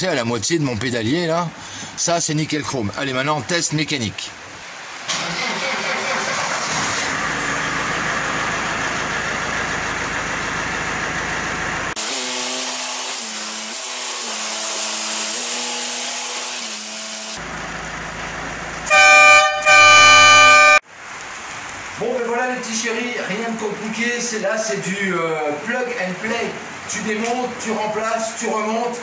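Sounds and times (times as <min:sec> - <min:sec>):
van engine running: 0:04.8 - 0:12.0, 0:17.4 - 0:19.7
van horn: 0:18.8 - 0:20.8.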